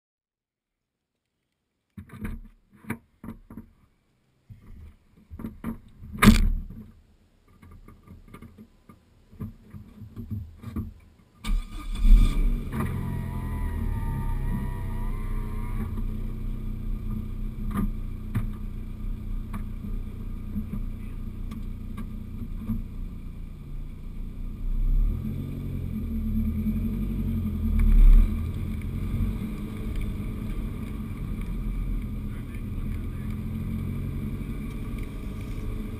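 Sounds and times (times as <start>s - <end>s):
sharp thump: 5.4s - 6.7s
car engine starting and idling: 11.4s - 35.9s
engine revving: 11.5s - 22.8s, 24.4s - 35.9s.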